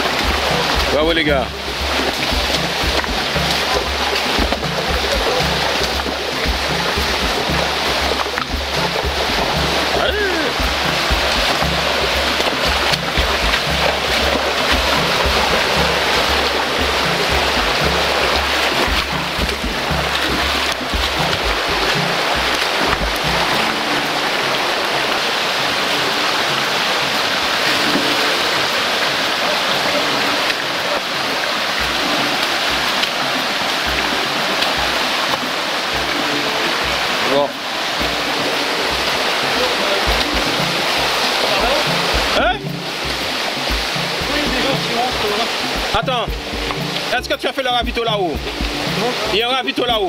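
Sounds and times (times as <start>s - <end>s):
low thumps: 0.0s - 24.3s, 40.0s - 49.3s
river rushing over stones: 0.0s - 50.0s.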